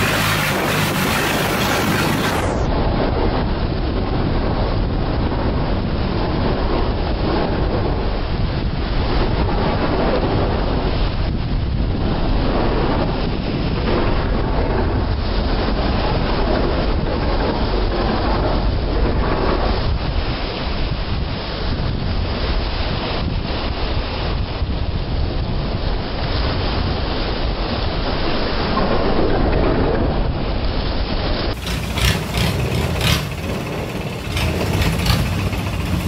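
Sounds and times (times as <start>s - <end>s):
rushing water: 0.0s - 2.7s, 31.5s - 36.0s
boat engine drone: 0.0s - 2.9s, 31.4s - 36.0s
wind buffeting microphone: 0.0s - 36.0s.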